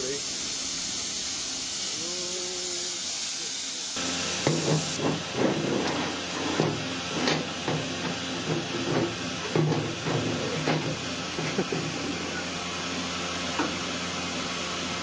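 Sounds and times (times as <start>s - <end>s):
steam locomotive hissing: 0.0s - 15.0s
metallic clanks and knocks: 4.5s - 11.6s.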